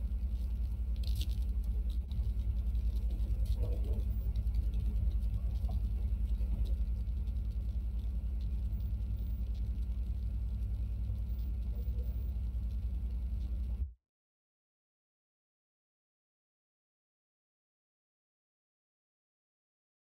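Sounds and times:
low hum with fast flutter: 0.0 - 14.0.

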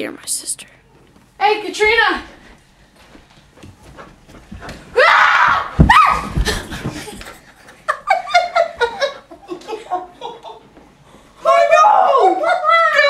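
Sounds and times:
heavy thumps: 3.6 - 7.2
person screaming: 5.0 - 6.3
rising cry: 5.0 - 6.4.

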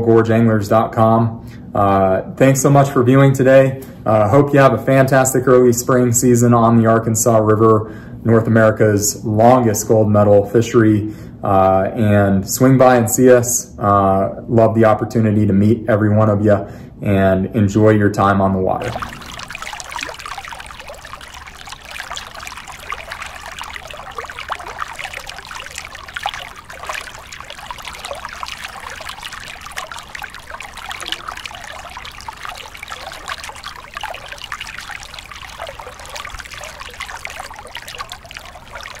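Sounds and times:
river water running and splashing: 18.8 - 39.0.

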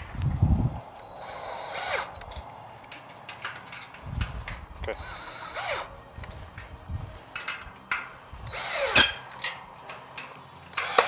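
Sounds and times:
cordless drill driving bolts: 1.0 - 11.0
metal clicks and knocks: 2.1 - 5.0, 5.9 - 11.0.

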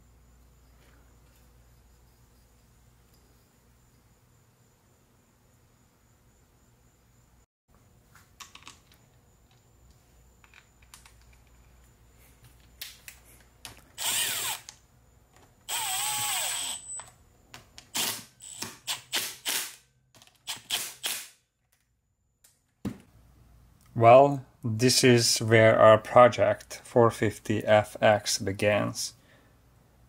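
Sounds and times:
power drill running: 14.0 - 14.7, 15.7 - 17.0, 17.9 - 19.7.

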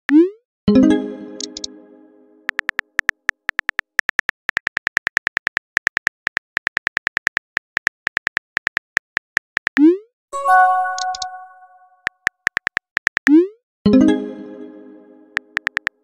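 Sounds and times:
chime: 10.4 - 12.0.

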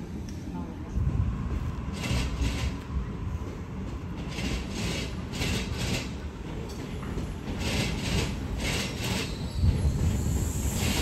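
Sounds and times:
train rumbling on rails: 0.0 - 11.0
rasping hiss bursts: 8.6 - 11.0.

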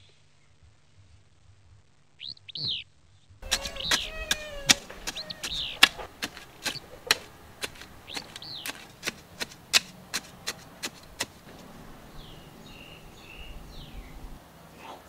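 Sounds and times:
bird chirping: 2.2 - 15.0
trowel scraping dry soil: 3.4 - 13.8.

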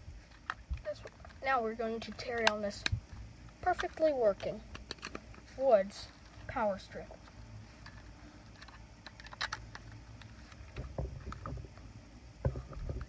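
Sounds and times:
power strip handling noise: 2.1 - 5.5, 7.8 - 11.8, 12.4 - 13.0.

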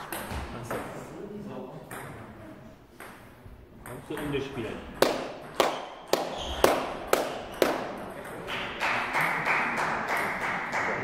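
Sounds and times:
table tennis ball bouncing: 0.0 - 1.0, 1.9 - 2.3, 2.9 - 11.0.

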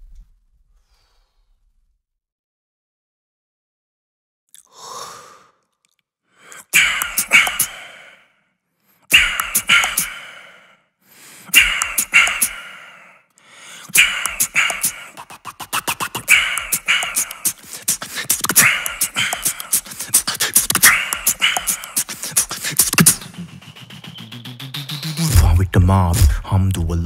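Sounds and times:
human beatboxing: 6.6 - 8.0, 9.1 - 10.4, 11.4 - 12.8, 13.7 - 27.0.

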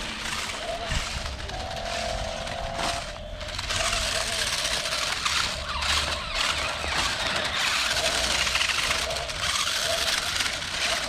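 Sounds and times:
toy electric motors whining: 0.0 - 11.0
tyres scrabbling on grit: 0.0 - 11.0.

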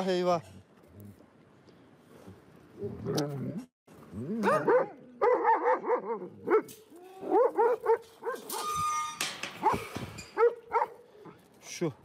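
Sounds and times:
dogs barking and yipping: 4.4 - 11.4.

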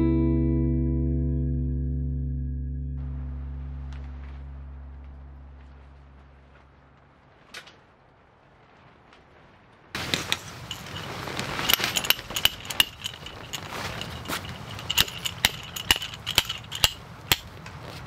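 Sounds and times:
hammer striking metal tent peg: 14.9 - 17.6.

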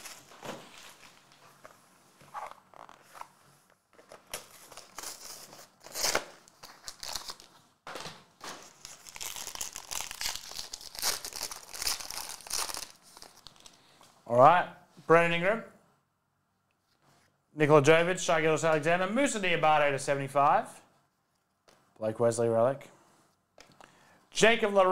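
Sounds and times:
foil wrapper tearing: 0.0 - 1.2, 4.8 - 7.5, 8.5 - 13.8
foil crinkling: 0.0 - 1.6, 4.4 - 7.6, 8.4 - 13.9.

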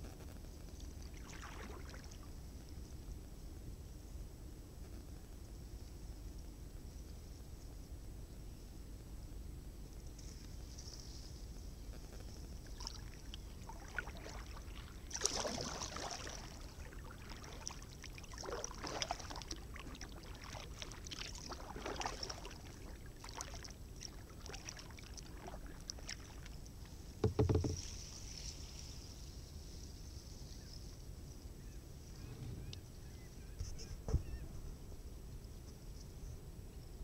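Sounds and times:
paddle strokes splashing water: 1.0 - 2.3, 12.5 - 29.0
low thump: 27.2 - 27.9.

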